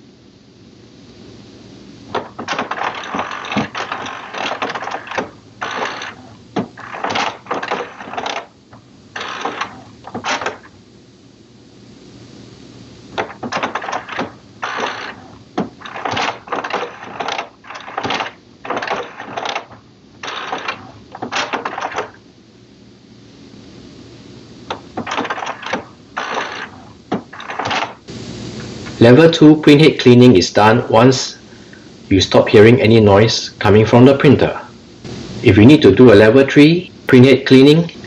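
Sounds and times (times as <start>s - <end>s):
printer mechanism stop-and-start noise: 2.1s - 10.8s, 13.1s - 22.2s, 24.7s - 28.2s.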